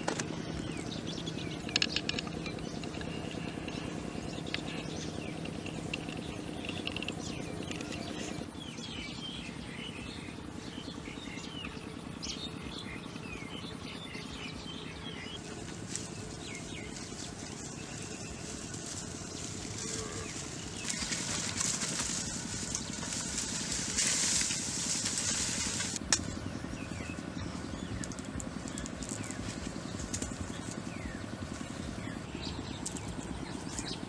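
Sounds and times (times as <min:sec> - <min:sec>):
birds chirping: 0:00.0 - 0:34.0
steady low hum: 0:00.0 - 0:34.0
cluster of clicks: 0:01.5 - 0:08.2, 0:27.9 - 0:30.8.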